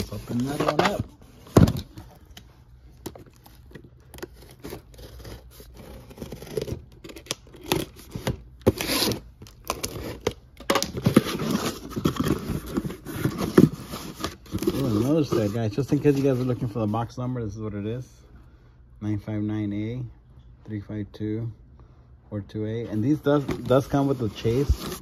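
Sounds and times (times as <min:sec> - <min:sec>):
packing tape tearing: 0:04.1 - 0:15.0
cardboard flaps scraping and rustling: 0:23.0 - 0:25.0.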